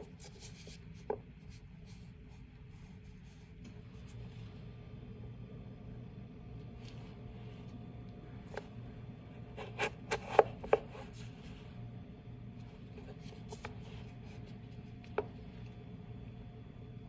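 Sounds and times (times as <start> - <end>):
knife chopping on cutting board: 9.6 - 11.0.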